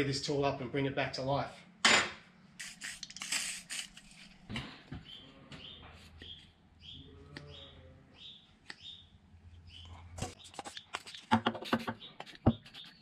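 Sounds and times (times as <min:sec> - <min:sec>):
aerosol spray hiss: 0:02.6 - 0:04.0.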